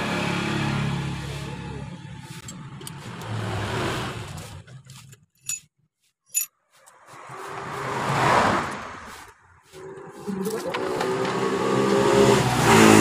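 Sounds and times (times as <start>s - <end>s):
vehicle passing: 0.0s - 4.9s, 6.7s - 13.0s
metal parts clinking: 5.0s - 5.7s, 6.3s - 6.5s.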